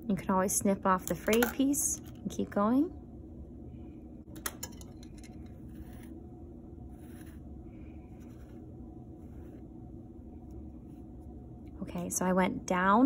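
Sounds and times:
low room hum: 0.0 - 13.0
yarn rustling and scraping: 5.2 - 6.2.

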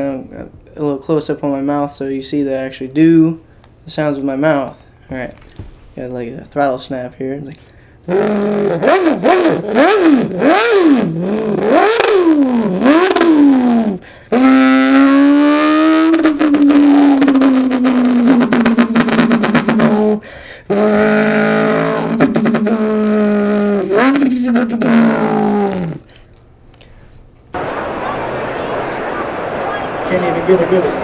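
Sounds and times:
man imitating a car engine: 8.0 - 26.1.

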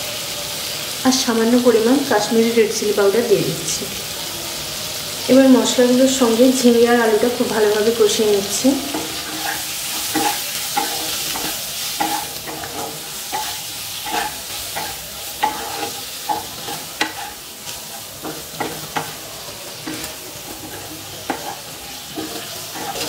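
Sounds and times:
vegetables sizzling in oil: 0.0 - 23.0
spatula scraping and tapping pan: 8.7 - 23.0.

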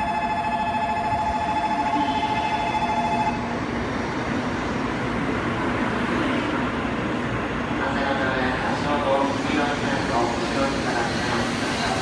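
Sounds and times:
two-tone electronic warning ring: 0.0 - 3.5
train rushing past with low rumble: 0.0 - 12.0.

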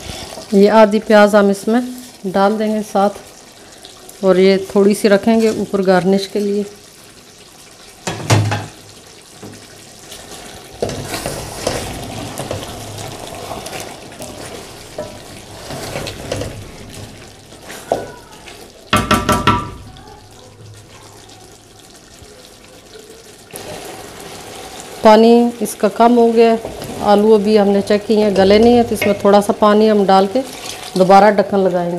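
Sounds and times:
spoon stirring food in pot: 10.3 - 18.7.

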